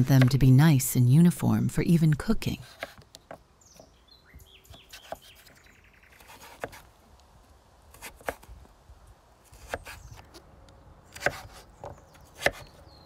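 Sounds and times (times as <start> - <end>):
knife slicing squash: 6.2 - 6.9, 7.9 - 8.5, 9.5 - 10.4, 11.1 - 11.7, 12.3 - 12.8.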